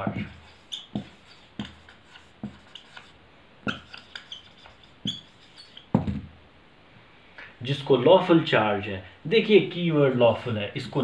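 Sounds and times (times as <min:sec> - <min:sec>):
marker writing on whiteboard: 0:00.0 - 0:06.1.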